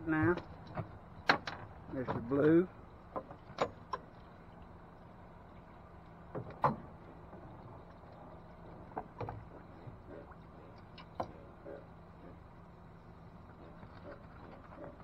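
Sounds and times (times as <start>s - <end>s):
steady low hum: 0.0s - 15.0s
knocks and clunks on boat: 0.1s - 4.4s, 6.2s - 12.5s.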